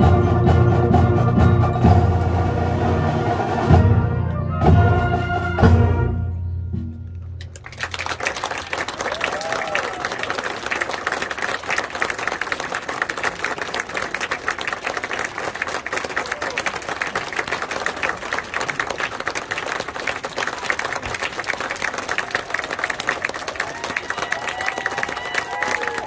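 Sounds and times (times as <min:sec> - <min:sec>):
large audience applauding: 0:07.4 - 0:26.0.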